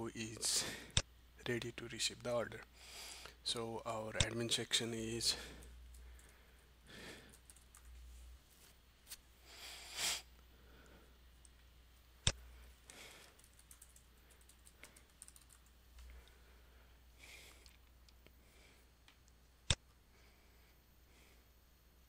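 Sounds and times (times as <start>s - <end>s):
computer keyboard typing: 7.2s - 7.9s, 13.0s - 15.8s.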